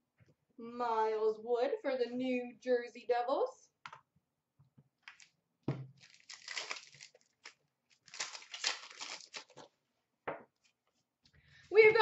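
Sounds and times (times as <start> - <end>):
wrapper tearing and crinkling: 6.0 - 9.7.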